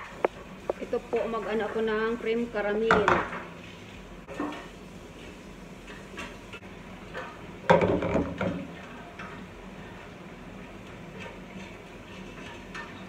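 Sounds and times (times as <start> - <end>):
pan scraping on stove grate: 10.8 - 13.0
pan clattering on grate: 11.1 - 13.0.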